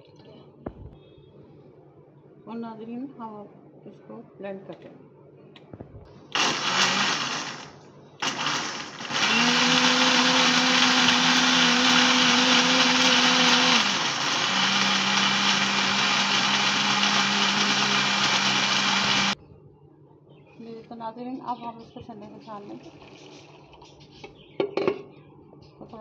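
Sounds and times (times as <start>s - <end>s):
electric blender motor: 6.4s - 19.4s.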